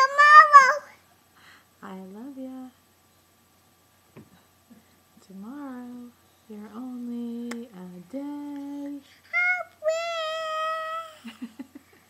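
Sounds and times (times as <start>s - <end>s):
toddler singing high notes: 0.0s - 0.9s, 9.3s - 11.0s
woman singing held notes: 5.2s - 9.1s.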